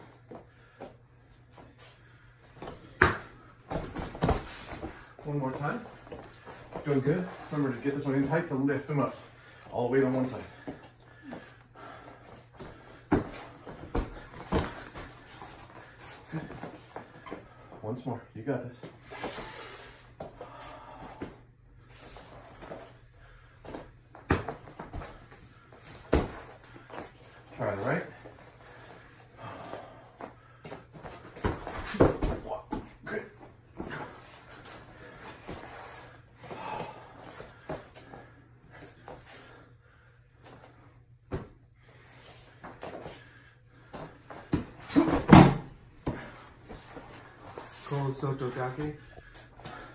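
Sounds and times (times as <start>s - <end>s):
bare feet shuffling on mat: 1.5s - 17.8s, 18.8s - 39.6s, 40.4s - 49.9s
body thumps on mat: 44.5s - 45.7s.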